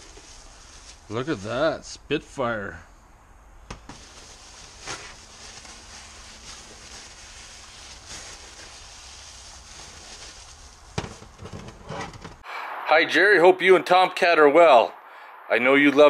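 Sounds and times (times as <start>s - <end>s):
bubble wrap rustling and crinkling: 0.0s - 1.5s, 3.9s - 11.9s
steady low background noise: 0.6s - 6.2s, 10.8s - 16.0s.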